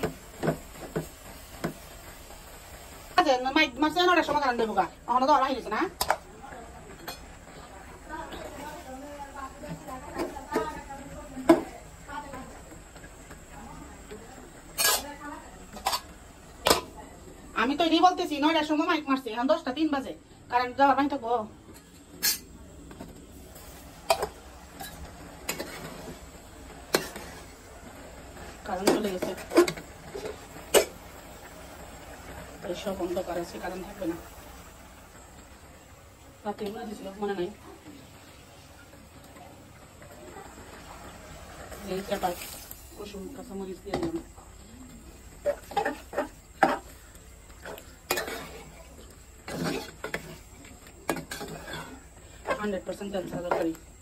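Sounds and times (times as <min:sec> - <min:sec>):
spoon stirring thick curry: 0:45.2 - 0:53.7.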